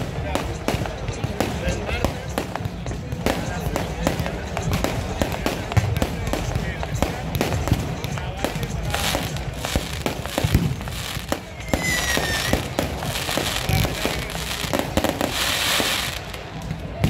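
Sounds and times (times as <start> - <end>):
fireworks bangs and crackles: 0.0 - 17.0
falling firework whistle: 11.5 - 12.8.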